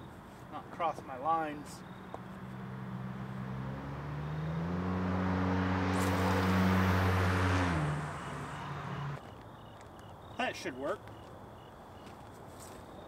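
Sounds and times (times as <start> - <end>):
vehicle engine passing by: 2.0 - 9.2.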